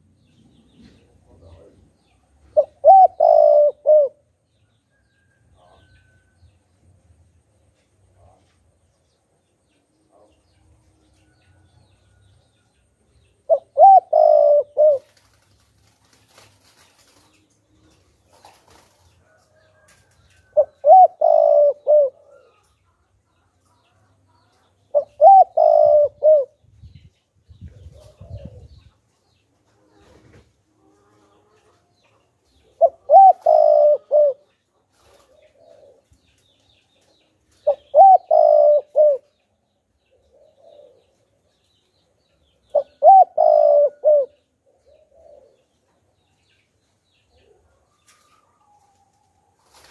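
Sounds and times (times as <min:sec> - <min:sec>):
dove cooing: 0:02.5 - 0:04.2, 0:13.5 - 0:15.2, 0:20.5 - 0:22.6, 0:24.9 - 0:26.6, 0:32.8 - 0:34.5, 0:35.3 - 0:36.0, 0:37.6 - 0:39.3, 0:40.2 - 0:41.1, 0:42.7 - 0:45.7.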